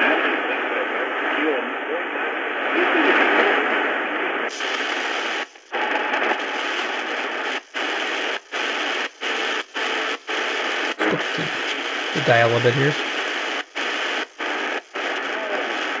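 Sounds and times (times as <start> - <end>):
radio static hissing: 6.5 - 16.0
faint radio station: 11.0 - 13.0.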